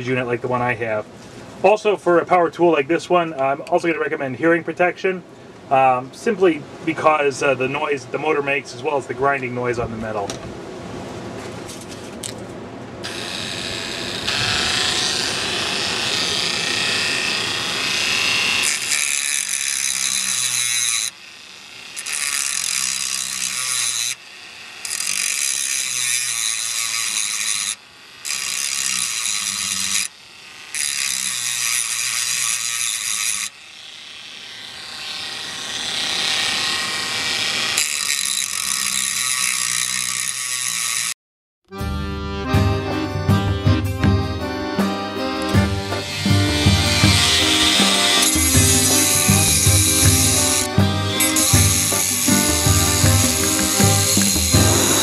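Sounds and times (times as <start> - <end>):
cutoff disc grinding metal: 13.0 - 41.1, 44.8 - 55.0
rotary tool motor whine: 13.0 - 41.2, 45.6 - 55.0.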